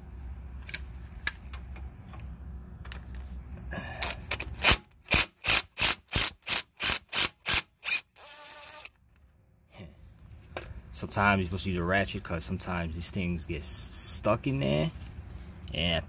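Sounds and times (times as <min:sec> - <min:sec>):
low steady hum: 0:00.0 - 0:05.2.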